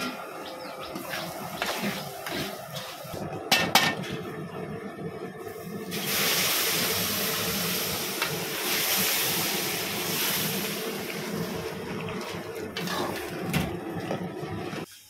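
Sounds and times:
sizzling and bubbling in pan: 0.0 - 15.0
water pouring: 5.9 - 14.9.

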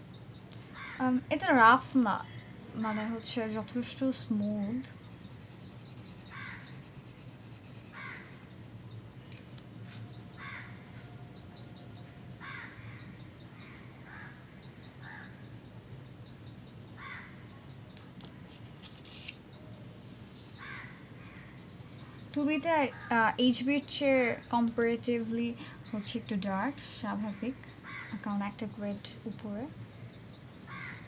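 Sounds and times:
crow cawing: 10.4 - 10.7, 12.4 - 13.0, 17.0 - 17.4, 20.6 - 21.0, 27.8 - 28.2, 30.7 - 31.0.

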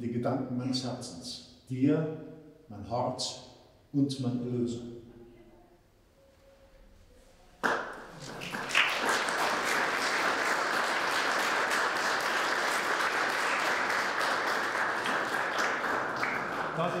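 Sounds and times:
audience applauding: 7.6 - 17.0.

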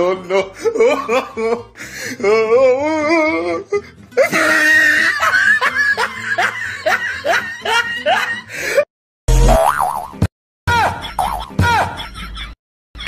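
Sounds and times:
person laughing: 0.0 - 2.5, 3.4 - 8.8, 10.7 - 13.0.

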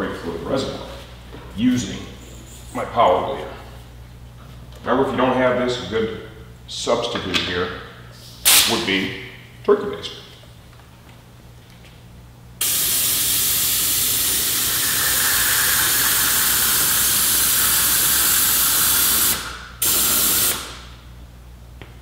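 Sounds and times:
air brake bleeder hissing: 12.6 - 20.8.

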